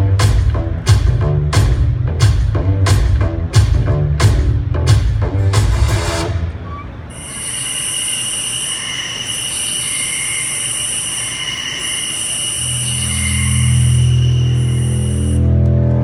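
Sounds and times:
shrill high-pitched whine with hiss: 6.6 - 15.6.

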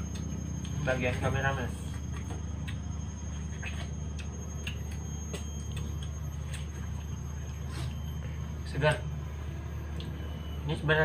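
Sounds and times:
chewing clicks and smacks: 0.0 - 0.8, 2.0 - 7.2
low background hum: 0.0 - 11.0.

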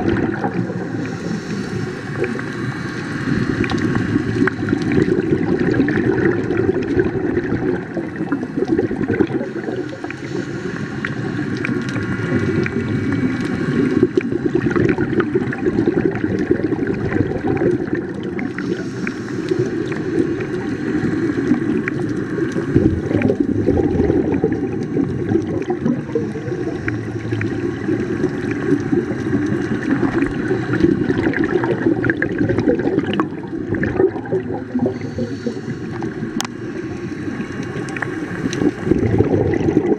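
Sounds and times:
diver's exhaled regulator bubbles: 0.0 - 39.9
underwater gurgling and bubbling: 0.0 - 39.9
faint ticks: 35.9 - 38.7.

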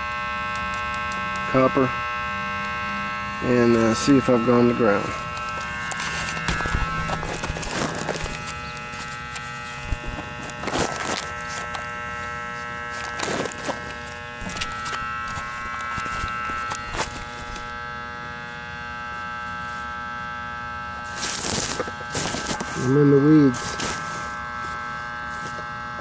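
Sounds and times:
electrical buzz: 0.0 - 26.0
leaves rustling: 5.0 - 11.7, 21.0 - 25.4.

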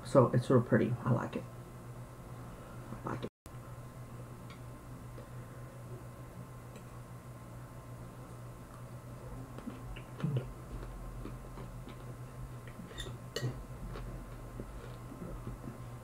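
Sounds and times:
steady low hum: 0.0 - 16.0
close-mouthed chewing: 9.4 - 12.9, 13.8 - 15.8.

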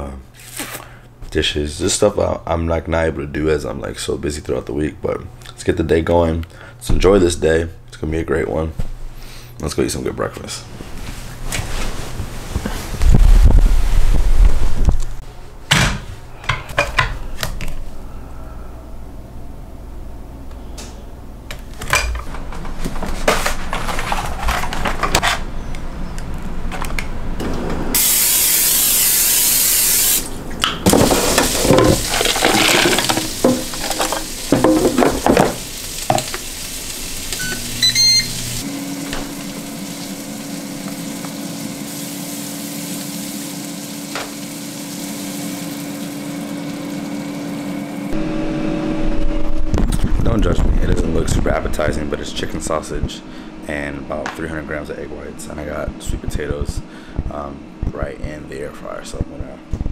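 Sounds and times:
loud hiss: 28.0 - 30.3
kitchen appliance humming: 30.1 - 50.2
dishes and utensils clattering: 31.0 - 36.3
short electronic beeps: 37.4 - 38.4.

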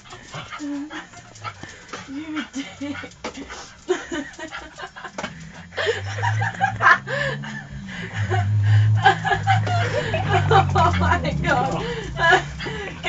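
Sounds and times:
people laughing: 2.1 - 13.0
low steady rumble: 3.9 - 13.0.

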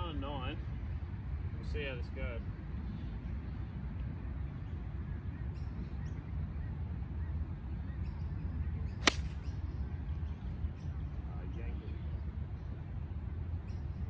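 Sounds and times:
golf club striking ball: 9.0 - 9.5.

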